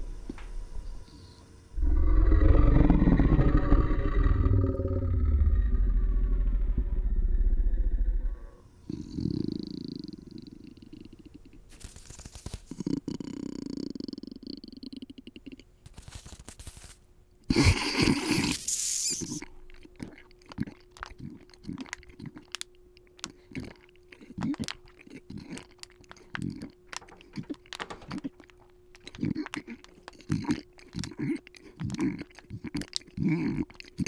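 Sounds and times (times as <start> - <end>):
faint steady hum: 0.0 - 34.0
loud harsh monster noise: 1.8 - 8.6
irregular clicks: 20.5 - 33.2.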